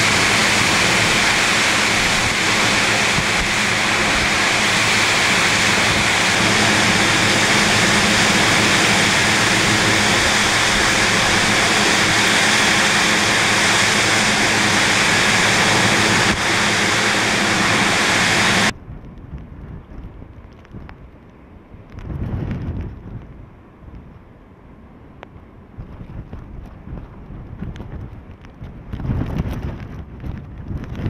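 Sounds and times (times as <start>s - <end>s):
heavy driving rain: 0.0s - 18.7s
strong wind rushing: 0.0s - 20.9s, 21.8s - 23.5s, 25.7s - 31.0s
gusty wind hiss: 0.0s - 31.0s.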